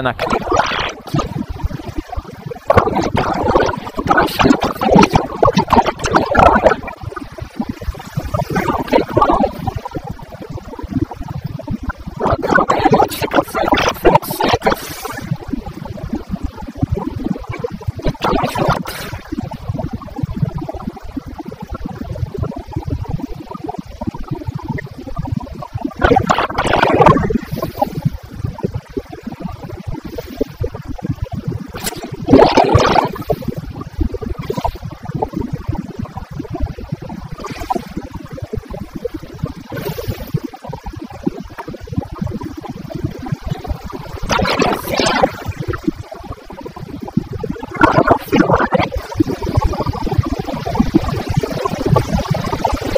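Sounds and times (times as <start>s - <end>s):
rush of noise: 0.0s - 9.9s, 16.8s - 19.6s, 25.8s - 28.5s, 29.4s - 35.6s, 37.2s - 46.1s, 46.7s - 52.9s.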